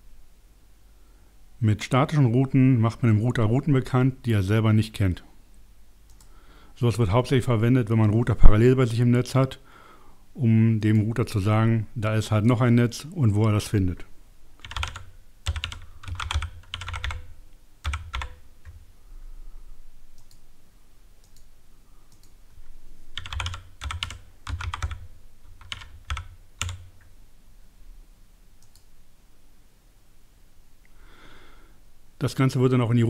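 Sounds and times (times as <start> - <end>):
typing on keyboard: 14.6 - 18.8, 23.2 - 26.9.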